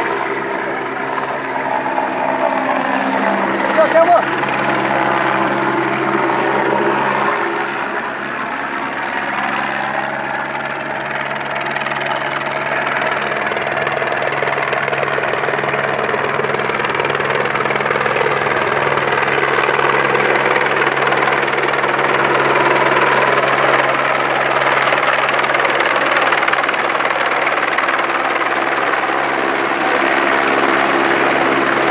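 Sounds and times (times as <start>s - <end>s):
helicopter flying overhead: 0.0s - 31.9s.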